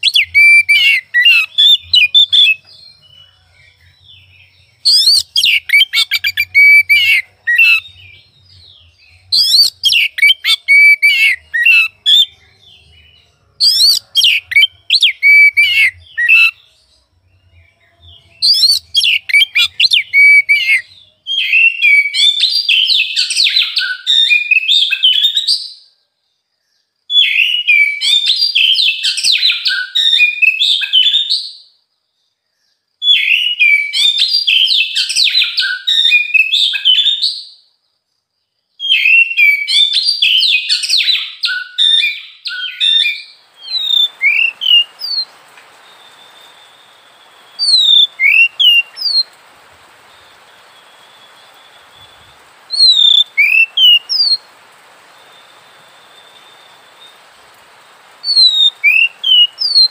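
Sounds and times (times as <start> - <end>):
bird singing: 0.0 - 59.9
short whistled bird notes: 39.0 - 49.3
steady hiss: 43.2 - 59.9.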